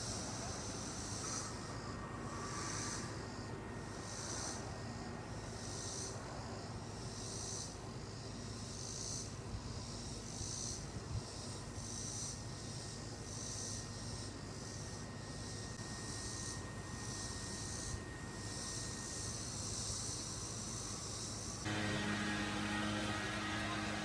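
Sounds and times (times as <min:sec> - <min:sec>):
cicadas buzzing: 0:00.0 - 0:24.0.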